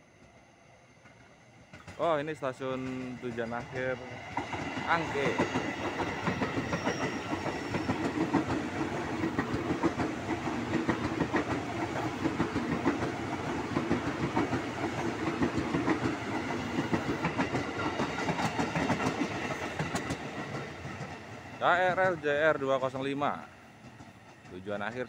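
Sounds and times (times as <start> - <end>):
train wheels rumbling on rails: 1.0 - 25.0
wheels clicking over rail joints: 2.8 - 21.3.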